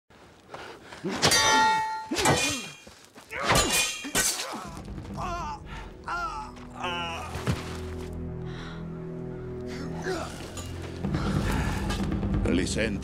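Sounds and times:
sword clanging on metal: 0:01.2 - 0:02.8, 0:03.5 - 0:04.4.

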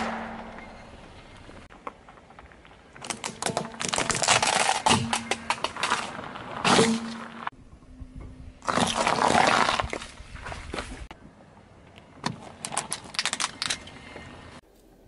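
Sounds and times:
plastic cracking under tyre: 0:01.7 - 0:07.4, 0:08.6 - 0:10.1, 0:12.2 - 0:13.9.

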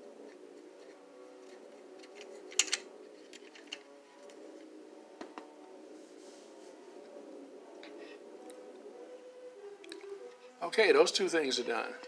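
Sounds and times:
faint background music: 0:00.0 - 0:12.0
plastic toy clicking and tapping: 0:02.0 - 0:02.8.

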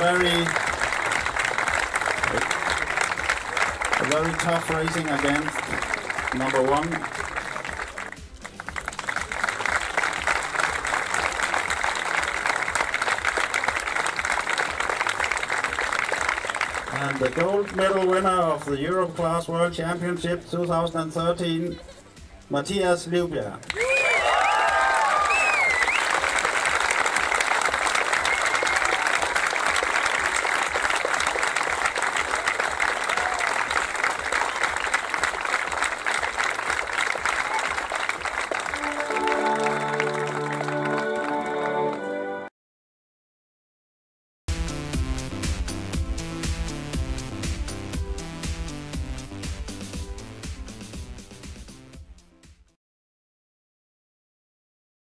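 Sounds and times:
crowd applauding: 0:00.0 - 0:18.9, 0:23.7 - 0:42.2.

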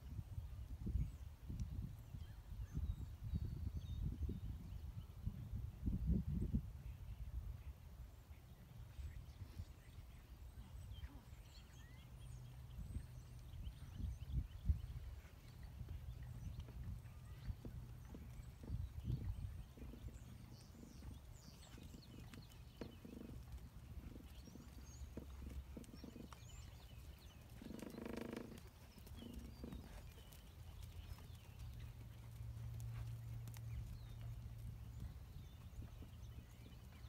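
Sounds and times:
low steady rumble: 0:10.1 - 0:37.0
hoofbeats on sand: 0:13.1 - 0:37.0.

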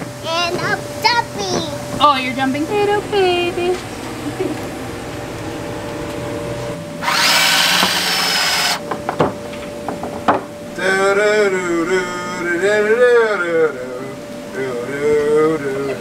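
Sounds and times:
cordless drill into wood: 0:07.0 - 0:08.8
sharp knocks: 0:08.8 - 0:10.5.

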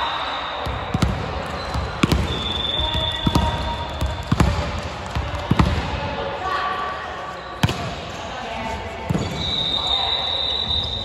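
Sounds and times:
volleyball bouncing on wooden floor: 0:00.6 - 0:06.0.

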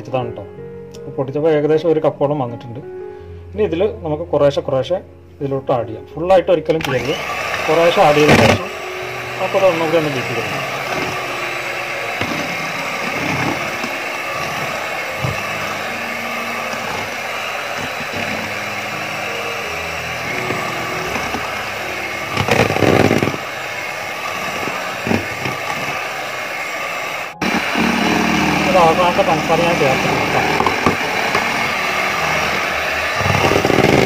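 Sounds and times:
electric hand mixer running: 0:06.8 - 0:34.0.

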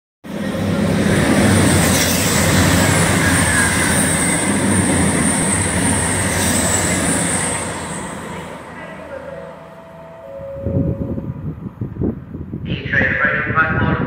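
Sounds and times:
high train whine: 0:00.2 - 0:14.0
train wheels rushing on rail: 0:00.3 - 0:09.4.

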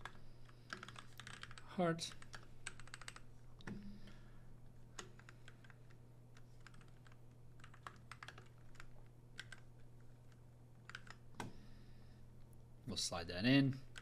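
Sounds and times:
keyboard typing clicks: 0:00.0 - 0:04.0, 0:06.6 - 0:09.7, 0:10.3 - 0:11.6
low steady hum: 0:00.0 - 0:14.0.

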